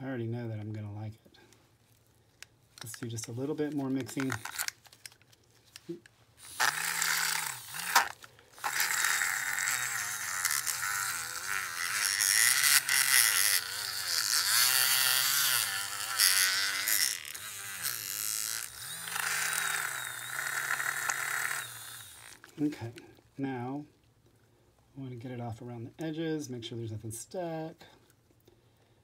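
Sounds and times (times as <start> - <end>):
hand mixer whirring: 6.4 - 22.5.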